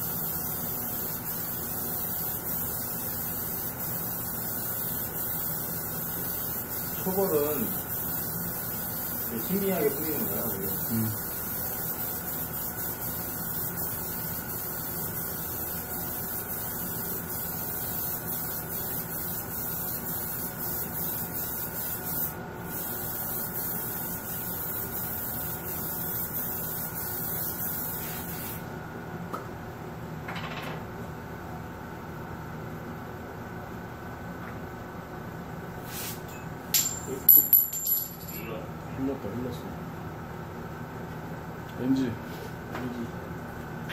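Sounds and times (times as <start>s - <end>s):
airbrush hissing: 0.0s - 28.6s.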